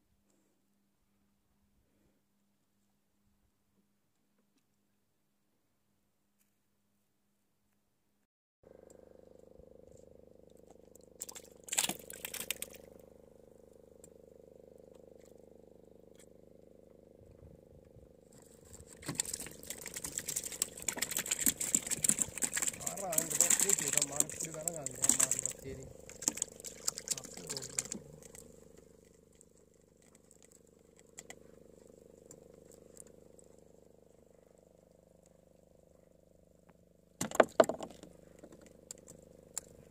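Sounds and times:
boat engine running: 9.2s - 35.1s
person speaking: 22.8s - 26.0s, 27.0s - 28.4s.

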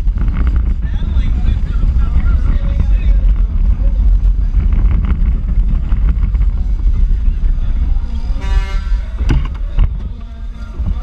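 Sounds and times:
kart chassis rattling: 0.0s - 11.0s
wind rumble on microphone: 0.0s - 11.0s
short horn toot: 8.3s - 9.2s.

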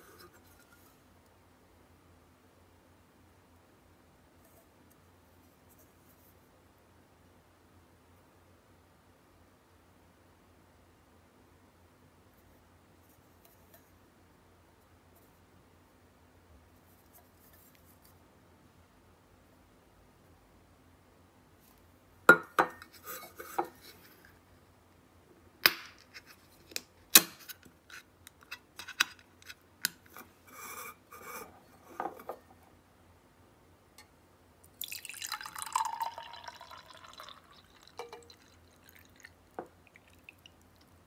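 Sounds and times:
coffee pouring into glass: 34.8s - 41.0s.

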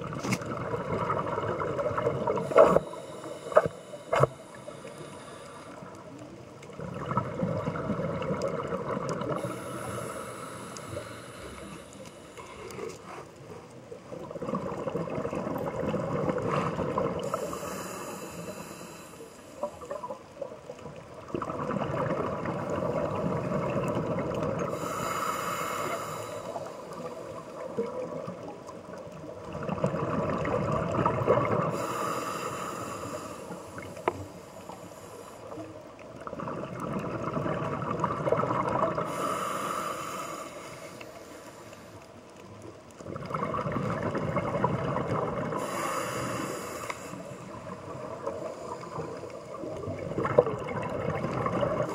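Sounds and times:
bubbling underwater exhalations: 14.2s - 17.4s, 21.3s - 24.7s, 36.2s - 39.1s, 43.0s - 45.7s, 49.6s - 51.9s.

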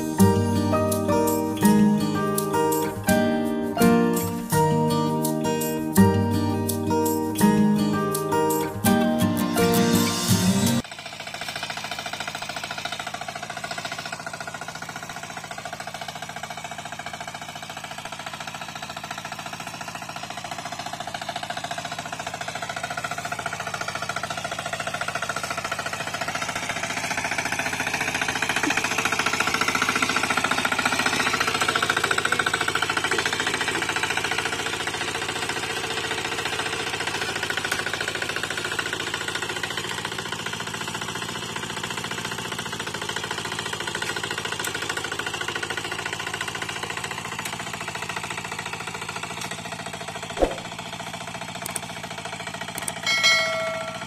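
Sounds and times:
diesel engine chugging: 0.0s - 54.0s
sharp click: 50.4s - 50.7s, 51.6s - 51.8s.

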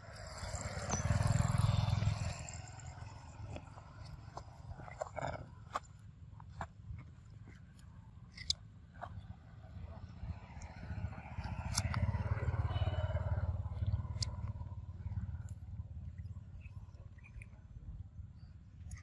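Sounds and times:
vehicle engine rumble passing: 0.0s - 5.6s, 9.2s - 17.6s.

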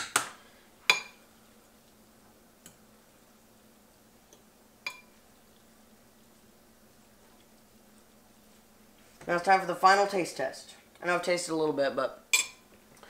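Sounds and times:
clinks against ceramic plate: 4.9s - 5.1s.

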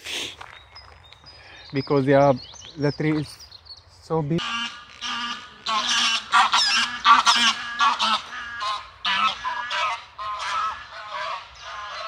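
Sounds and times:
geese honking: 4.4s - 12.0s.

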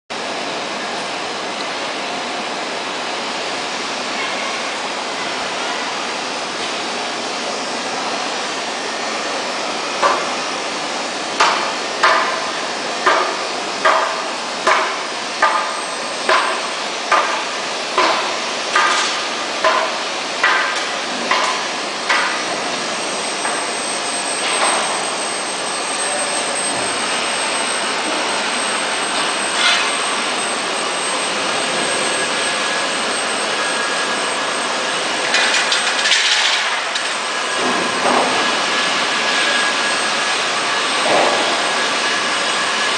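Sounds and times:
workshop machinery din: 0.1s - 42.9s
faint high whine: 22.5s - 35.9s.

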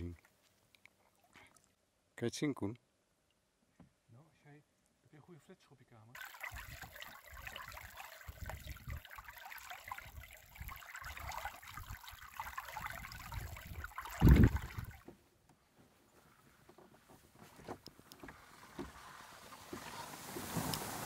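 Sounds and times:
water splashing along canoe: 6.2s - 15.2s, 17.6s - 21.0s
wind buffeting microphone: 8.3s - 9.1s, 12.8s - 15.0s.

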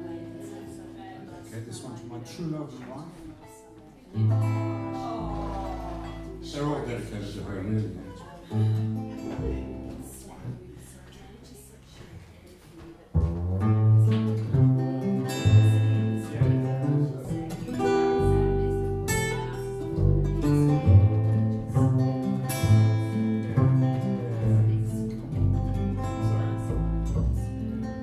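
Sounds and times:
strummed acoustic guitar: 0.0s - 11.2s, 13.1s - 28.0s
plucked double bass: 4.2s - 10.9s, 13.1s - 28.0s.

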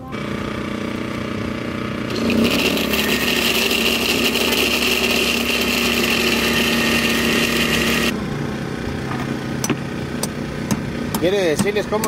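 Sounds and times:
blender motor running: 0.1s - 8.2s.

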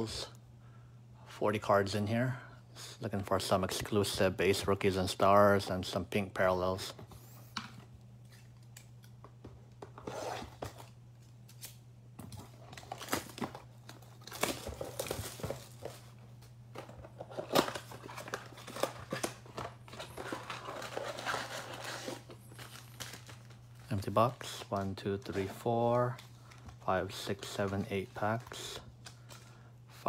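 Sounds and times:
plastic wrap tearing and crinkling: 11.5s - 16.2s, 17.2s - 25.4s.

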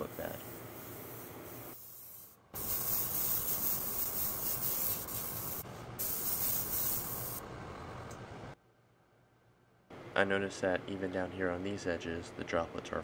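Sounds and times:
airbrush spraying hiss: 0.0s - 7.4s.

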